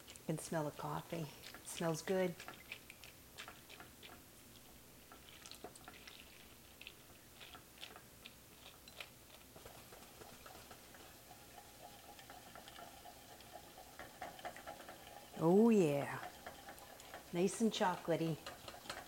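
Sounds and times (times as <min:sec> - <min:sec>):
spatula scraping saucepan: 0:09.6 - 0:19.0.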